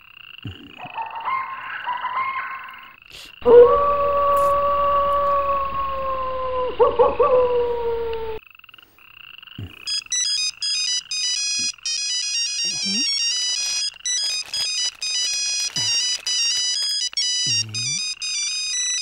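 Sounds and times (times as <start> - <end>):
mobile phone ringtone melody: 9.9 - 19.0.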